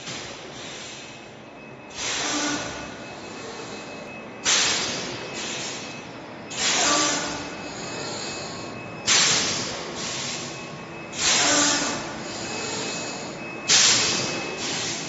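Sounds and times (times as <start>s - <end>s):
machine running: 1.8s - 15.0s
air hissing: 6.5s - 8.3s, 11.2s - 15.0s.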